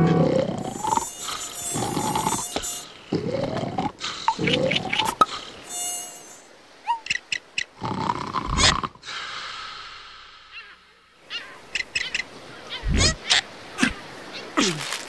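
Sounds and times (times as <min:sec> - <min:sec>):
slow rhythmic snoring: 0:00.1 - 0:05.3
cartoon mosquito whining: 0:00.4 - 0:02.9, 0:04.8 - 0:06.5
short chirps: 0:00.6 - 0:02.9, 0:05.0 - 0:07.0.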